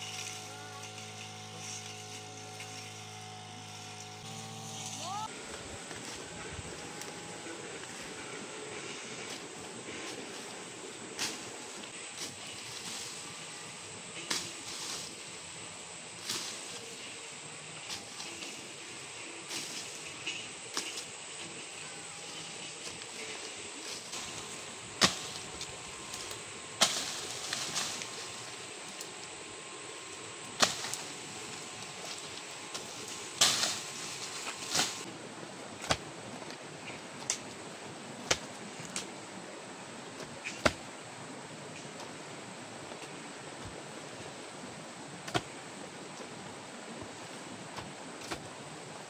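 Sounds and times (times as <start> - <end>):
hoe blades striking soil: 0.0 - 10.5, 14.2 - 15.2, 22.3 - 29.3, 29.9 - 35.1, 35.8 - 36.6, 38.2 - 39.1, 40.2 - 40.9, 45.2 - 45.6, 47.8 - 48.6
steady background hiss: 0.0 - 49.0.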